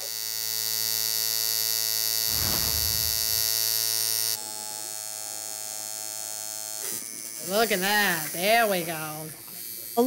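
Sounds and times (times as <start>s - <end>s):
tattoo machine buzzing: 0.0s - 2.2s, 5.4s - 10.0s
low rustling noise: 2.3s - 3.6s.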